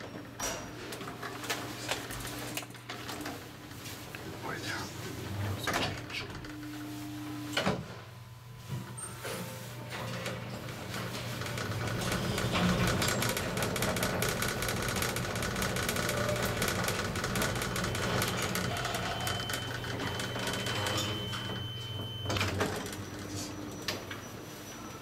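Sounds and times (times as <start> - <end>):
elevator drive hum: 0.0 - 25.0
elevator doors clattering open: 5.2 - 6.7, 9.9 - 24.9
elevator car rattling: 10.0 - 24.4.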